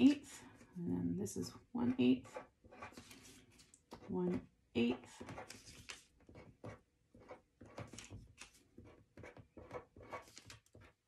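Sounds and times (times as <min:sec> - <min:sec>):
pen scratching on paper: 0:01.8 - 0:08.1, 0:08.8 - 0:11.0.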